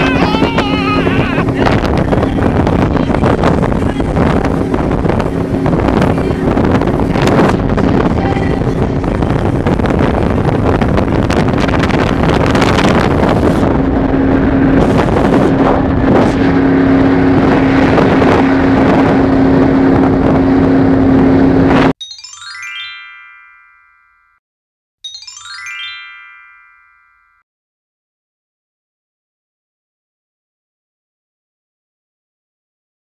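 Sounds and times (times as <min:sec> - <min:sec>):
speedboat engine humming: 0:00.0 - 0:21.9
wind on microphone: 0:00.0 - 0:22.0
short rising chime: 0:22.0 - 0:24.4, 0:25.0 - 0:27.4.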